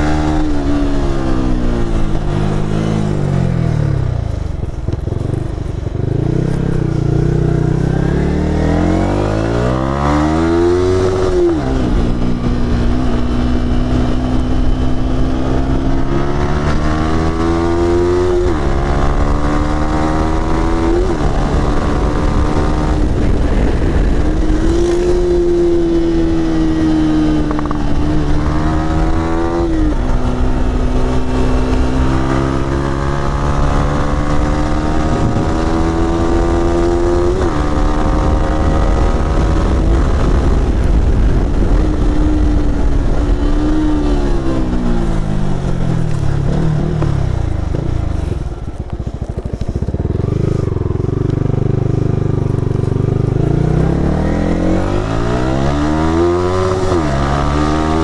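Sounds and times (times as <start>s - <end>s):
motorcycle engine accelerating: 0.0s - 58.0s.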